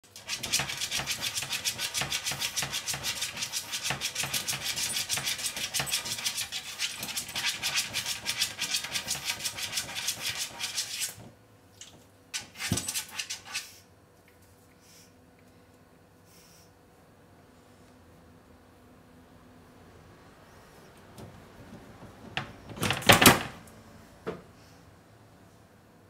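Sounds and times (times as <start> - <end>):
dog claws scratching wooden door: 0.1 - 11.2, 12.4 - 13.7.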